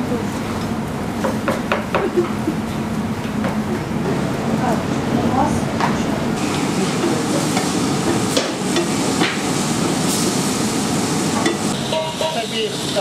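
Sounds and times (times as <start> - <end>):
frying hiss: 0.0 - 13.0
utensil knocking on cookware: 1.2 - 2.1.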